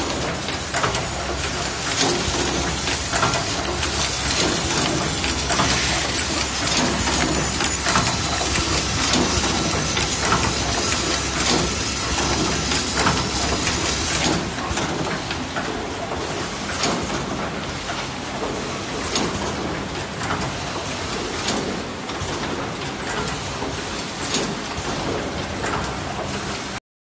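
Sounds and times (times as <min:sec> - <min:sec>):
machine mechanical din: 0:00.0 - 0:17.5
pneumatic cylinder clacks: 0:00.0 - 0:26.7.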